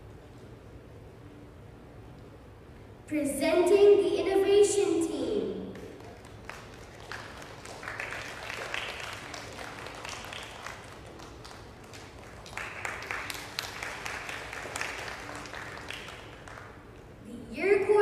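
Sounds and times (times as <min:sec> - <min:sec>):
audience applauding: 0:05.7 - 0:17.0.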